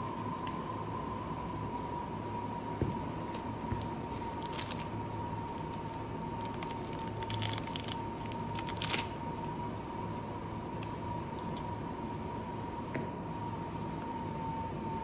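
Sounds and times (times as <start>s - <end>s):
plastic bag crinkling: 3.8s - 4.9s, 6.4s - 9.2s.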